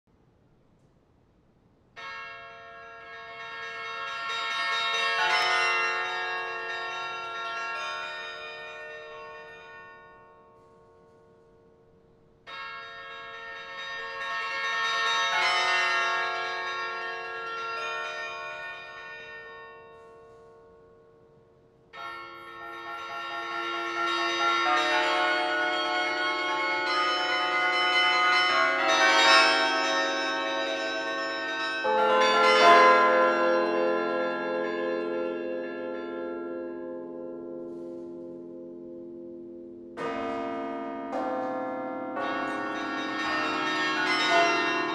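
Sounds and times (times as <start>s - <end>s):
carillon bells ringing: 22.0s - 38.7s, 39.4s - 44.9s.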